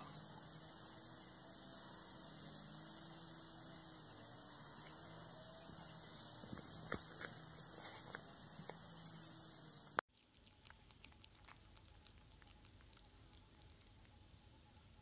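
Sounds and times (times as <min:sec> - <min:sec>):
high-pitched hiss: 0:00.0 - 0:10.0
faint low hum: 0:00.0 - 0:15.0.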